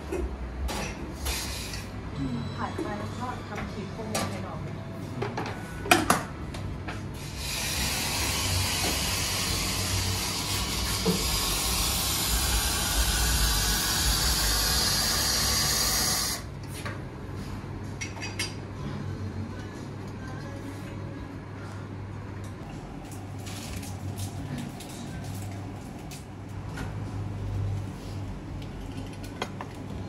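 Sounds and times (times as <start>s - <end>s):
steam wand hissing: 7.2s - 16.4s.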